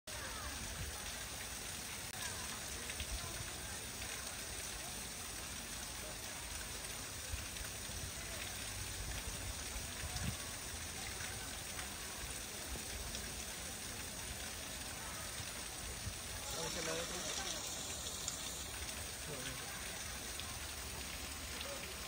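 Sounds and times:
faint murmur of voices: 0:00.1 - 0:22.0
water spraying onto concrete: 0:00.1 - 0:22.0.

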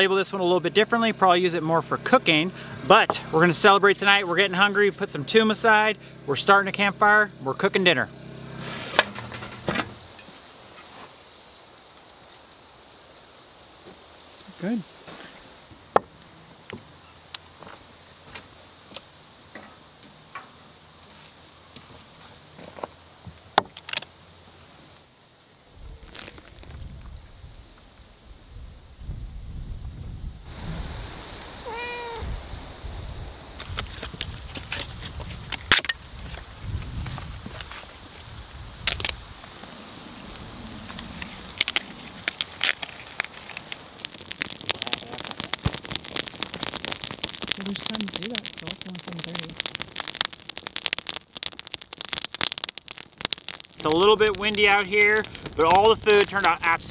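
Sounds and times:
campfire crackling and popping: 0:00.0 - 0:06.9, 0:08.4 - 0:19.4, 0:21.8 - 0:28.1, 0:30.5 - 0:56.9
wind rumble on microphone: 0:25.7 - 0:42.4.

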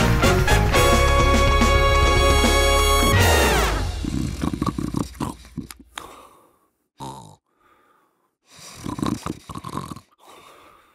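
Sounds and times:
dog snorting: 0:03.9 - 0:06.0, 0:08.6 - 0:10.1
dog snoring: 0:04.0 - 0:05.7, 0:08.6 - 0:10.2.

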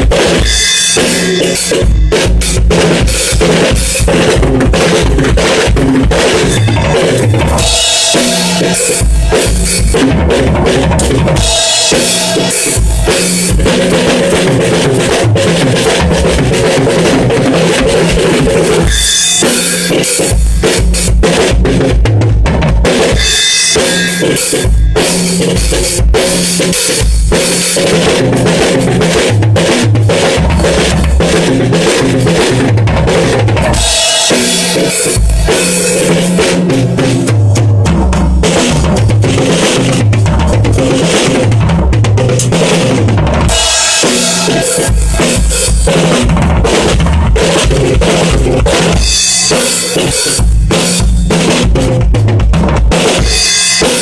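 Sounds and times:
cymbals: 0:00.0 - 0:10.2, 0:10.9 - 0:14.5, 0:33.1 - 0:37.3, 0:43.4 - 0:48.1.

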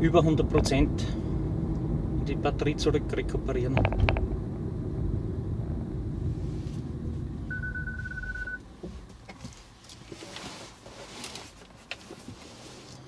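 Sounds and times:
road and tyre rumble: 0:00.0 - 0:13.0
electronic beep: 0:07.5 - 0:08.6
faint clicks and rustles: 0:08.8 - 0:13.0.

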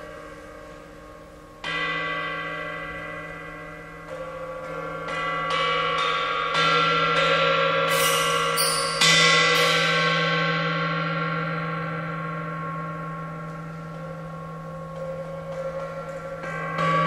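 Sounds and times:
bell-like struck notes: 0:00.0 - 0:17.0.

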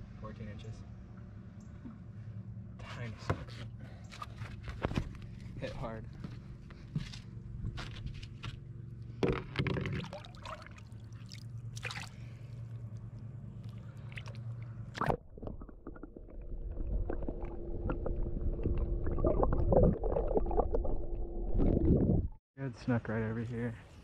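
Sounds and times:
water sloshing and gurgling: 0:08.4 - 0:22.4
muffled underwater rumble: 0:11.6 - 0:22.4.

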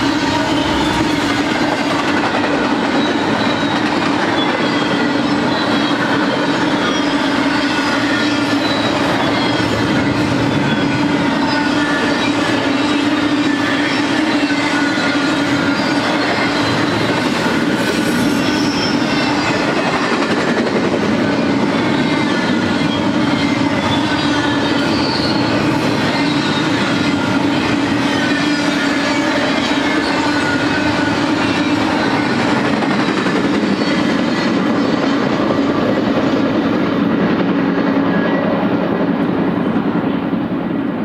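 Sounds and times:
high whines: 0:00.0 - 0:02.4
freight train wheels rumbling: 0:00.0 - 0:41.0.

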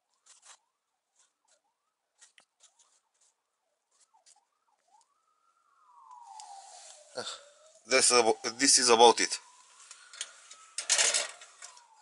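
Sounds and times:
faint gliding tone: 0:04.0 - 0:12.0
solder crackling: 0:04.0 - 0:12.0.

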